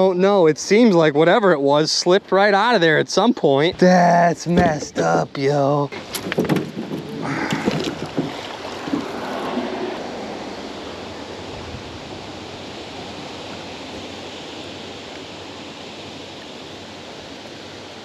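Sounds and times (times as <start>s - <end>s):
water rushing: 0.0s - 18.0s.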